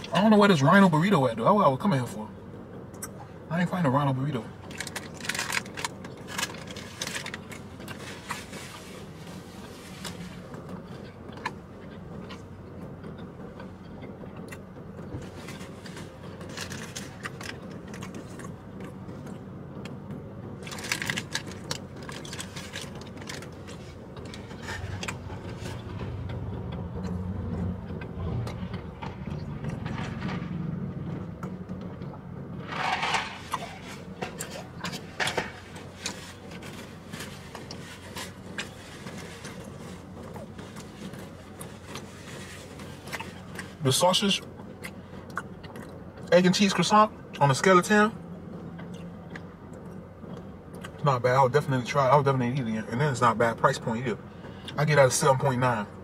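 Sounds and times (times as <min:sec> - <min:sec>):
car cabin hum: 0:00.0 - 0:56.0.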